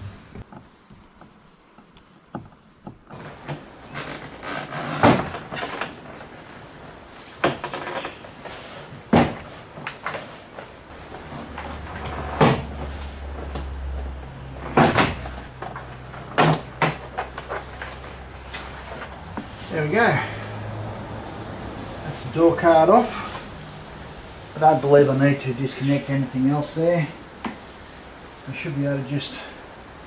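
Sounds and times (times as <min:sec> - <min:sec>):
panel rustling and handling: 0:14.6 - 0:19.7.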